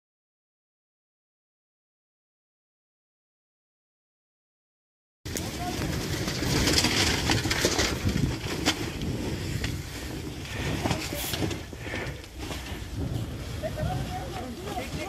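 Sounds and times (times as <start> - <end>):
fire crackling and popping: 5.3 - 15.0.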